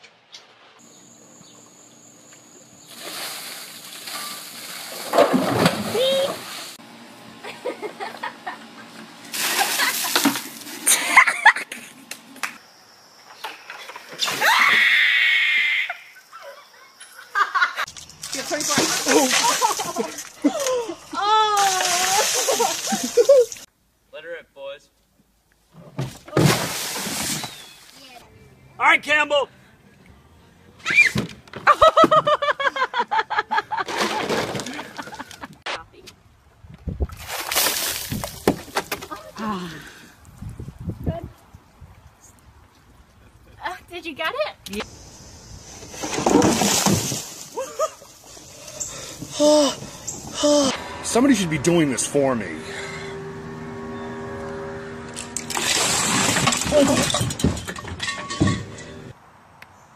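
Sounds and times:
person laughing rhythmically: 7.4 - 8.7, 10.9 - 12.0, 22.2 - 23.6, 31.7 - 33.9
water splashing over person: 9.3 - 10.8, 18.3 - 23.6
long high-pitched scream: 14.2 - 16.1
ice clattering: 18.0 - 20.7, 46.0 - 47.5, 55.4 - 58.9
water splashing down a plastic slide: 18.2 - 20.8, 21.4 - 23.6, 45.8 - 48.6, 55.5 - 57.4
person shrieking: 49.3 - 51.0.

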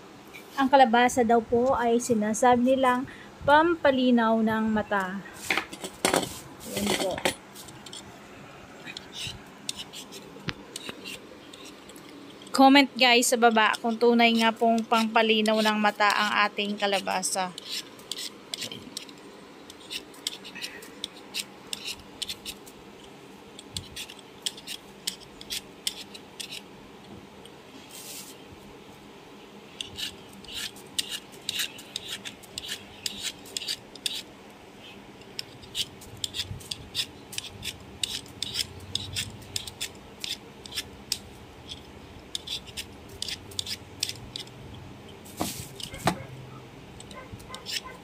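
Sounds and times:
knife scraping squash rind: 5.4 - 8.1, 8.8 - 22.7, 23.7 - 26.7, 27.9 - 28.4, 29.7 - 34.3, 35.3 - 44.5, 45.1 - 46.2, 47.0 - 48.0.

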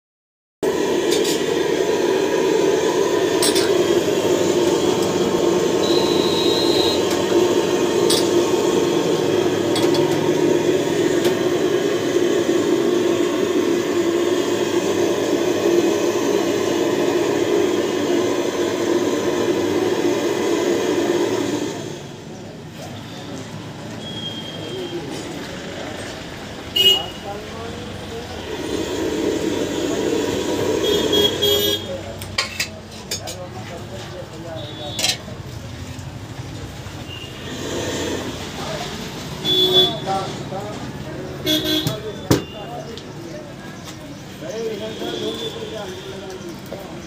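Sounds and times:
high beep: 5.8 - 7.0.

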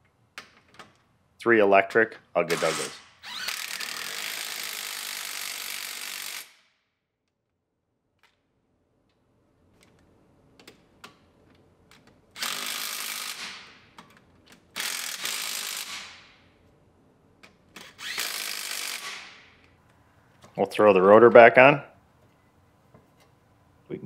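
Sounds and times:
electric ratchet running: 2.6 - 6.6, 12.4 - 13.6, 14.8 - 16.2, 17.8 - 19.5.

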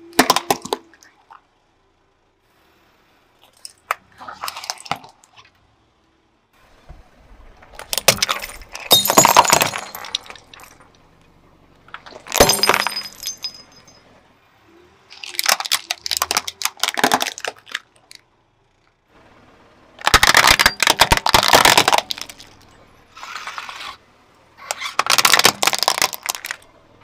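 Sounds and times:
glass shattering: 7.8 - 10.9, 11.9 - 14.1, 20.0 - 22.8, 25.0 - 26.6.

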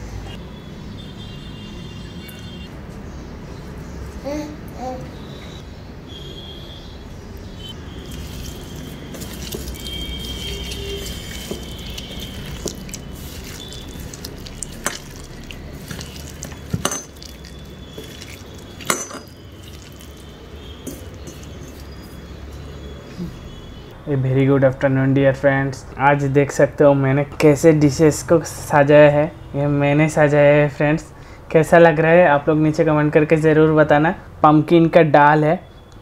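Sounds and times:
hand squishing wet vegetables: 8.0 - 22.3.

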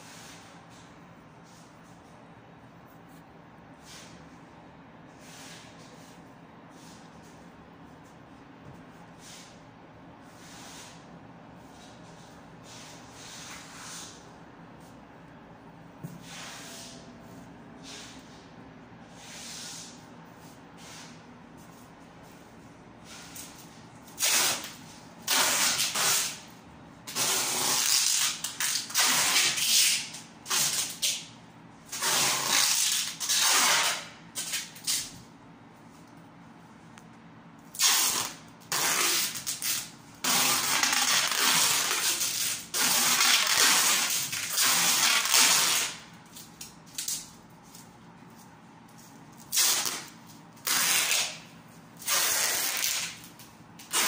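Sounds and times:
packing tape screeching: 27.1 - 31.2, 31.9 - 35.0, 37.7 - 46.0, 49.5 - 51.4, 52.0 - 53.2, 53.8 - 54.0.

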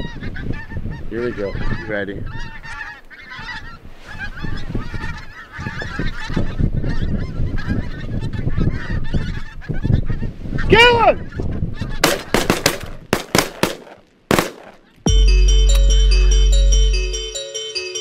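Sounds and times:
wind rumbling on microphone: 0.0 - 12.1
geese honking: 0.0 - 12.3.

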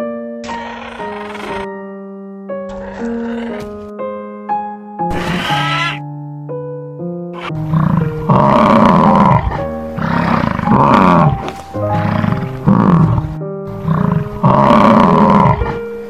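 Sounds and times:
piano music: 0.0 - 16.0
bison bellowing: 0.4 - 1.7, 2.7 - 3.9, 5.1 - 6.0, 7.4 - 16.0.

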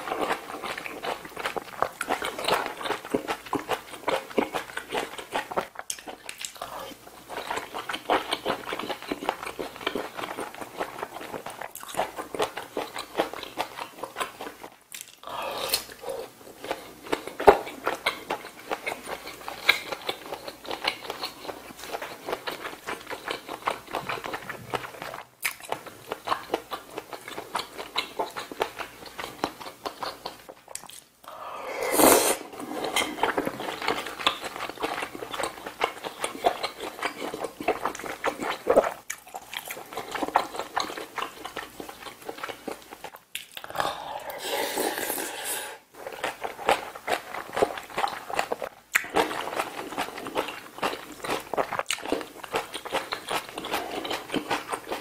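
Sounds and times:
wet chewing and biting: 32.9 - 43.8, 46.0 - 55.0.

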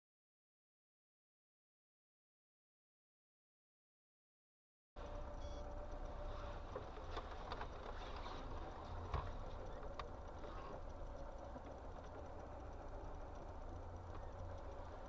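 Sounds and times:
engine and road rumble: 5.0 - 15.0.

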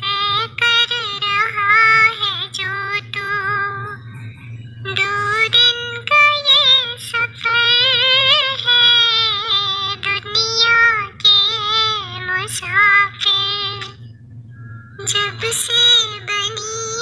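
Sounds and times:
child-like voice singing: 15.0 - 17.0.

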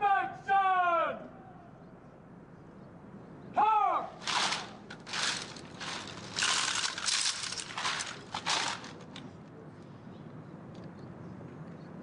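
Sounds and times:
person shouting command: 0.0 - 1.2, 3.6 - 4.2
rifles clattering: 4.2 - 9.2.

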